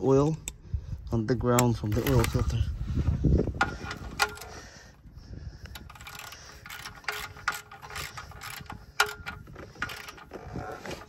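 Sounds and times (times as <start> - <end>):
socket ratchet clicking: 5.7 - 10.4.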